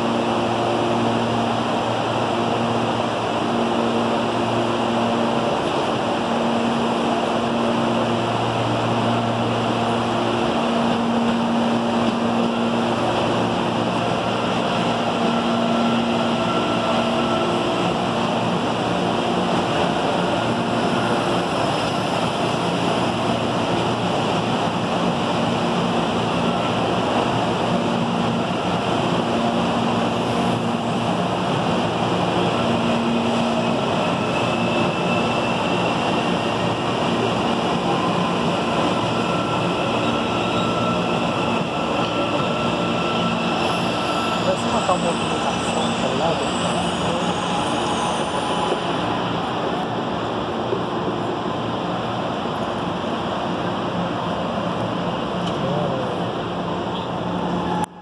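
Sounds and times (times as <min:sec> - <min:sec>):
train rushing noise: 0:00.0 - 0:58.0.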